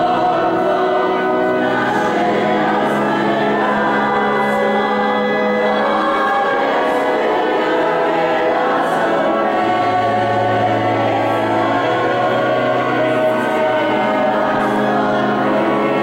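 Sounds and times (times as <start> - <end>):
choir singing in a church: 0.0 - 16.0.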